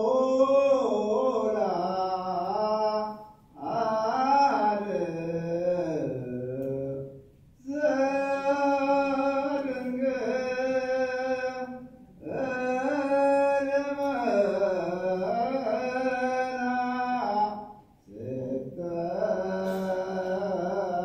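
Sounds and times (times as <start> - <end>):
unaccompanied liturgical chant: 0.0 - 21.0.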